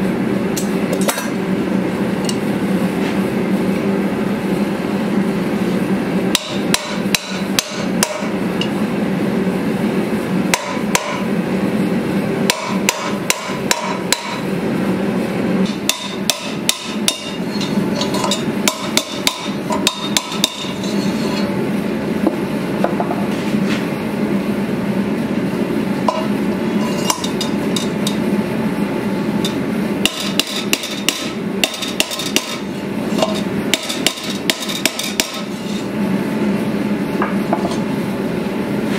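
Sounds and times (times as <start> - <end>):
steady low hum: 0.0 - 38.9
hammer striking hot metal: 6.3 - 8.8, 10.5 - 11.3, 12.4 - 14.5, 15.6 - 21.5, 26.0 - 28.2, 29.4 - 35.6.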